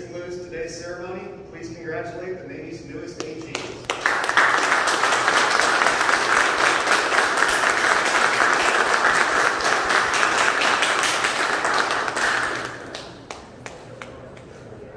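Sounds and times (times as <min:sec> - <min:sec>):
audience applauding: 0:03.6 - 0:14.5.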